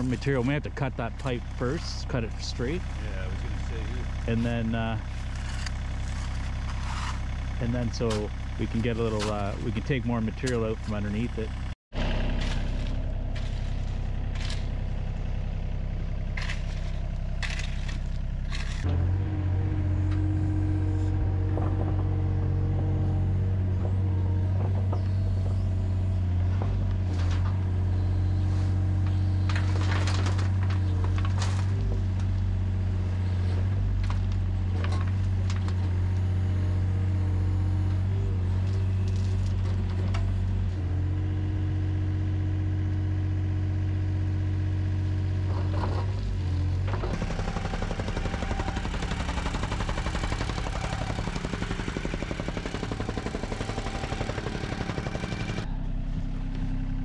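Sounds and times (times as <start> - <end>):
excavator diesel engine: 0.0 - 57.0
scrapes and knocks: 5.1 - 7.3.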